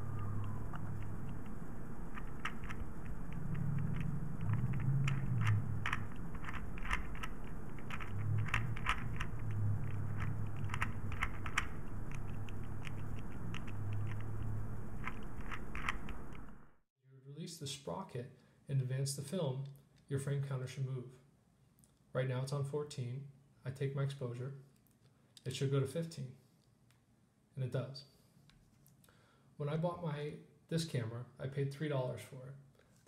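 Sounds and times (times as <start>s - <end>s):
low hum: 0.0s - 16.8s
camera gears clicking: 15.0s - 16.2s.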